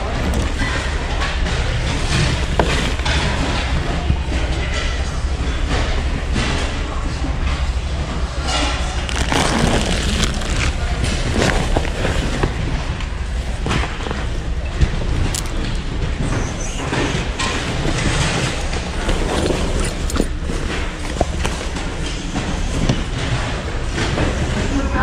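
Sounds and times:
clothing rustling: 0:09.0 - 0:24.4.

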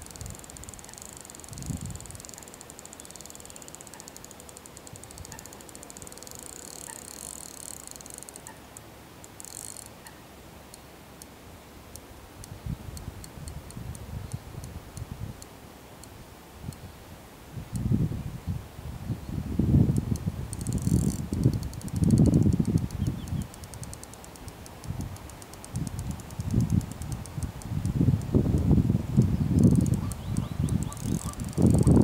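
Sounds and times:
fishing reel ticking: 0:00.0 - 0:11.3, 0:20.0 - 0:32.0
wind buffeting microphone: 0:01.4 - 0:02.2, 0:17.6 - 0:23.5, 0:25.8 - 0:32.0
faint tick: 0:11.9 - 0:16.9, 0:19.9 - 0:32.0.

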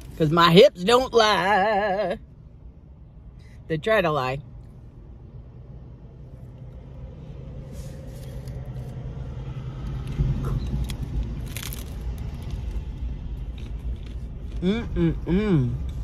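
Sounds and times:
low vehicle rumble: 0:00.0 - 0:16.0
crunchy chewing: 0:09.8 - 0:15.0.

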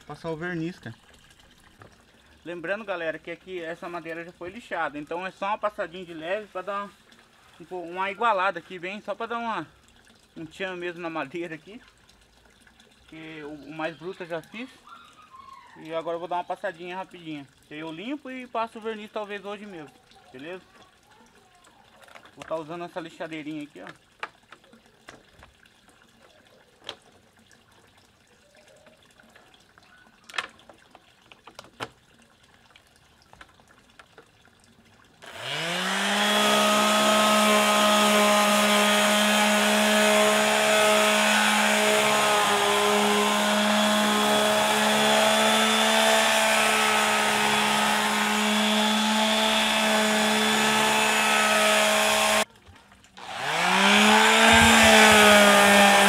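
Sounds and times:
electric sander motor humming: 0:35.2 - 0:52.4, 0:53.2 - 0:56.0.

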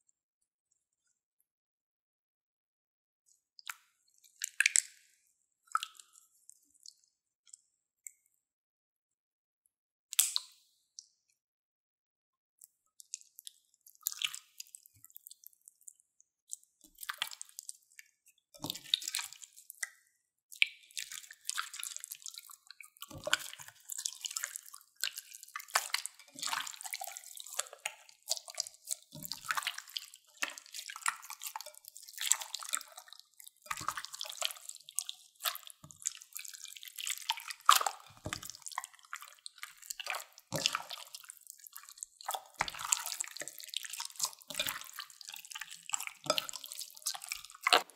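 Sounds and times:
slime squelching: 0:21.0 - 0:47.9.

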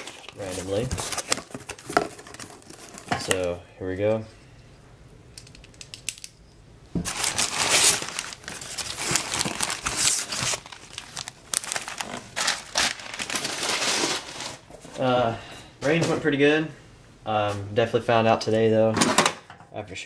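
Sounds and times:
packing paper crinkling: 0:00.0 - 0:03.5, 0:07.0 - 0:14.8.

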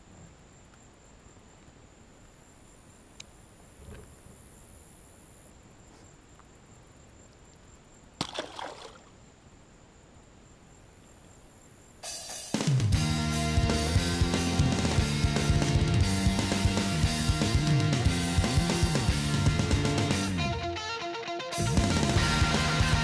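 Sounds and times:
faint open water: 0:00.0 - 0:12.0
fish splashing into water: 0:08.2 - 0:09.1.

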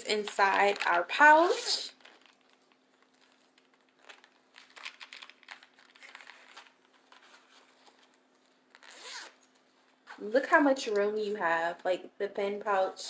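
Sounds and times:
fabric pouch rustling: 0:00.3 - 0:10.2.

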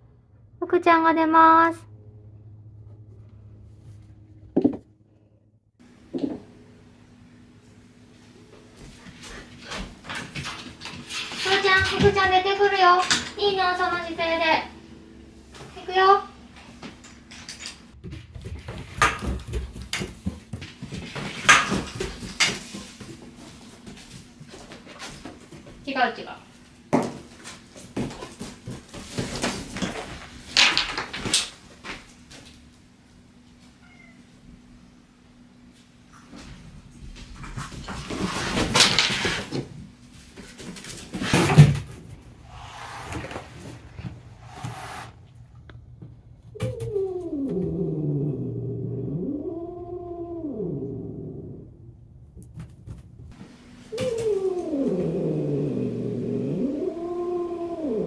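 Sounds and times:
puppy scrambling on floor: 0:18.0 - 0:25.8.

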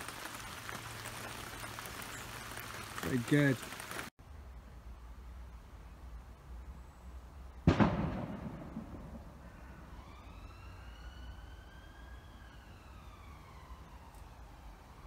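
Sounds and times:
siren wailing: 0:09.6 - 0:15.0.

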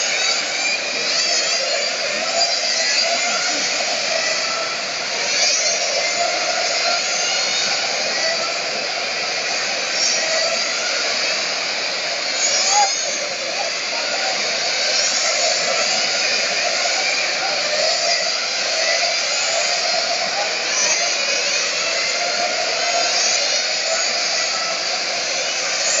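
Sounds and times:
electric toy car motors whining: 0:00.0 - 0:26.0.

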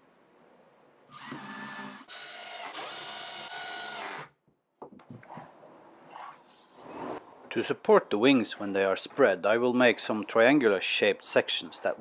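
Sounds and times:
cordless drill driving screws: 0:01.1 - 0:04.3.

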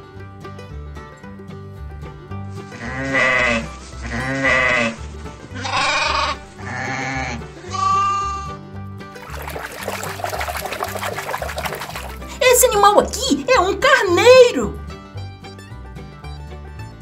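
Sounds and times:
background music: 0:00.0 - 0:17.0
sheep bleating: 0:02.8 - 0:05.0, 0:05.6 - 0:08.6.

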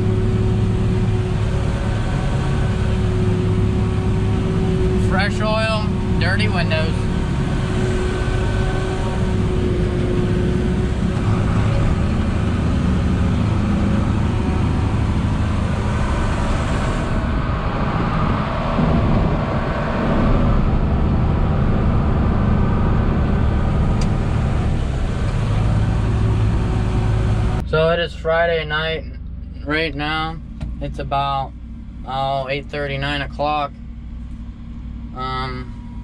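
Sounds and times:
tractor engine drone: 0:00.0 - 0:36.0.

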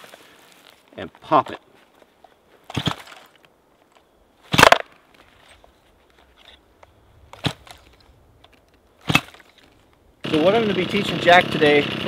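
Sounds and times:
chainsaw starter cord pulled: 0:09.1 - 0:12.0.

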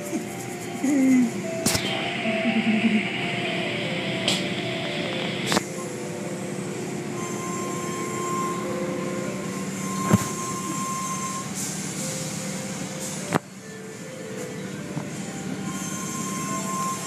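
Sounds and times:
thin motor whine: 0:00.0 - 0:17.0.

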